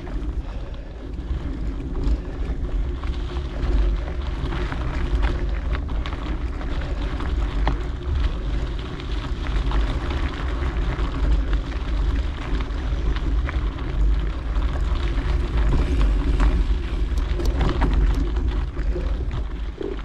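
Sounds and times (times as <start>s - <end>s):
wind buffeting microphone: 0.0s - 20.0s
light clicks and scrapes: 14.7s - 20.0s.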